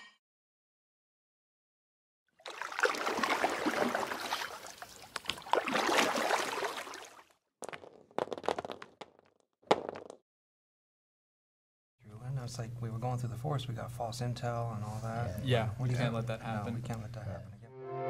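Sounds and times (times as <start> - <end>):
water sloshing and lapping: 2.4 - 7.4.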